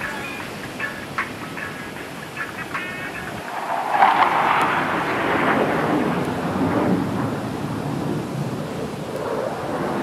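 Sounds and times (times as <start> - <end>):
jet roaring overhead: 0.0 - 10.0.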